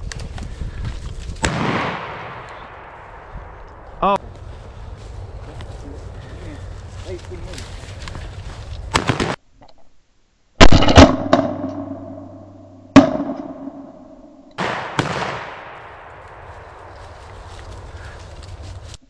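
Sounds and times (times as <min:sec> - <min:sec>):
shotgun shots echoing: 0:01.4 - 0:03.8, 0:08.9 - 0:09.4, 0:10.6 - 0:14.0, 0:14.6 - 0:16.9.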